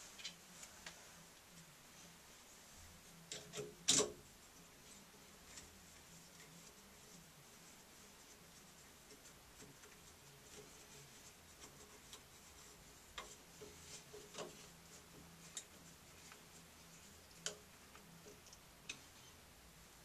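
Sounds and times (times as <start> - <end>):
small clicks and knocks of parts: 0.2 - 1.0, 3.3 - 4.2, 17.3 - 19.2.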